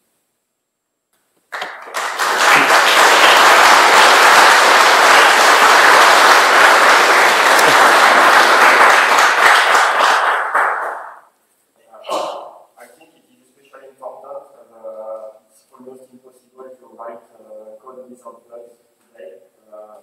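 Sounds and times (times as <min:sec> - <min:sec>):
audience applauding: 0:01.5 - 0:11.3.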